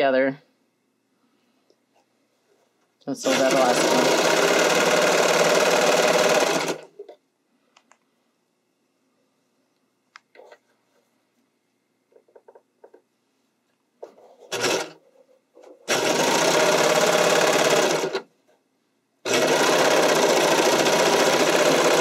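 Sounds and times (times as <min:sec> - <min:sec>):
overlock machine stitching: 0:03.2 - 0:07.1, 0:14.4 - 0:15.0, 0:15.8 - 0:18.3, 0:19.2 - 0:22.0.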